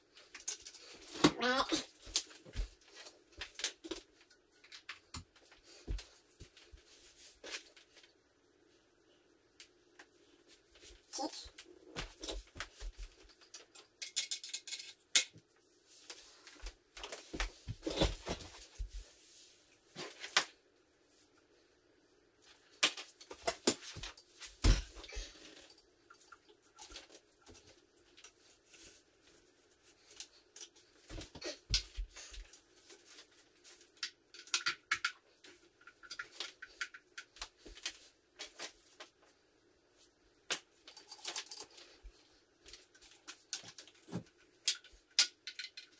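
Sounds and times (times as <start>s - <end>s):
clicks knocks and rattles of parts: 0.2s - 1.3s, 12.0s - 15.4s, 33.1s - 39.2s, 40.5s - 42.0s, 42.6s - 45.9s.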